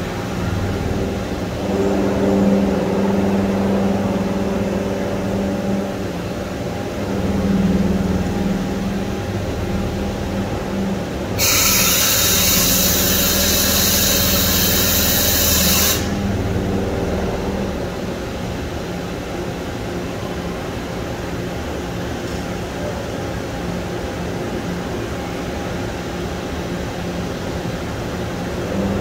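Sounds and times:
machine drives humming: 0:00.0 - 0:29.0
loud hiss: 0:11.4 - 0:16.2.

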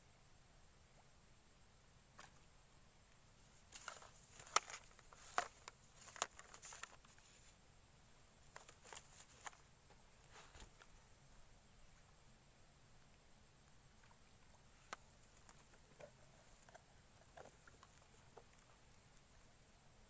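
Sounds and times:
soft rustles: 0:03.4 - 0:07.7, 0:08.4 - 0:11.3.

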